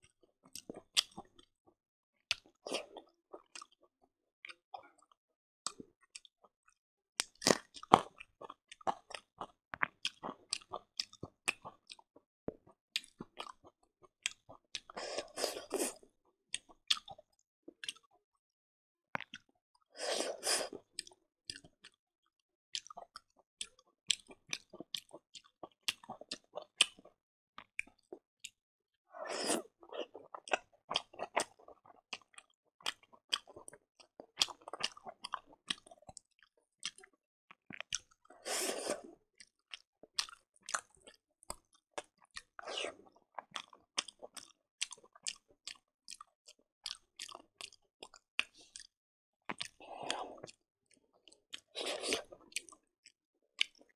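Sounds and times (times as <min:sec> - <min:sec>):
close chewing: 0:07.2 - 0:12.1, 0:22.8 - 0:27.1, 0:29.2 - 0:48.9, 0:49.5 - 0:53.9
wet mouth clicks and lip smacks: 0:46.9 - 0:48.9, 0:49.5 - 0:50.6.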